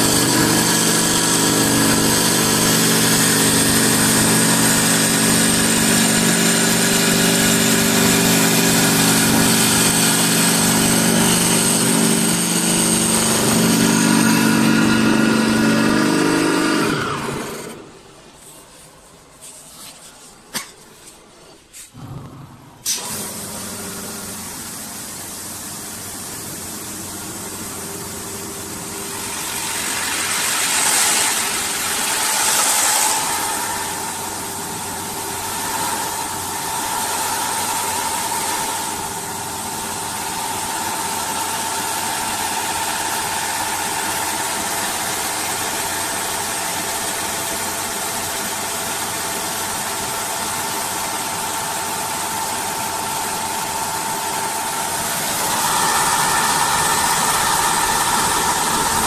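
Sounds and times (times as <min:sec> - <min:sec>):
lathe machine hum: 0:00.0 - 0:18.0, 0:22.0 - 0:48.6, 0:49.7 - 0:59.0
steady machine whine: 0:00.0 - 0:18.1, 0:51.5 - 0:59.0
sanding wheel hissing: 0:29.1 - 0:34.6, 0:55.0 - 0:59.0.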